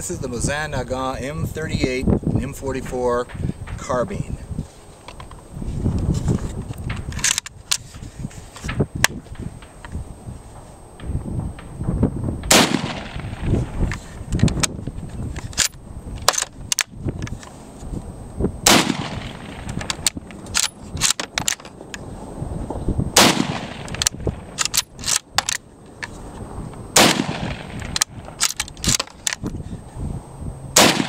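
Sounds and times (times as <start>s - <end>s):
rifle bolt clicks: 6.9s - 7.8s, 15.4s - 17.4s, 18.7s - 21.8s, 23.2s - 26.1s, 27.0s - 29.5s
rifle shots: 12.4s - 13.8s, 18.6s - 21.3s, 23.2s - 25.2s, 27.0s - 29.0s, 30.8s - 31.0s.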